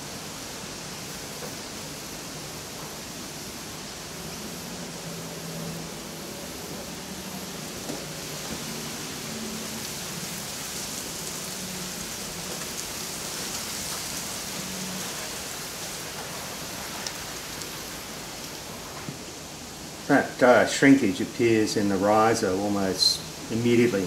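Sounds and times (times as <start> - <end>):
furnace burner rushing hiss: 0.0 - 24.0.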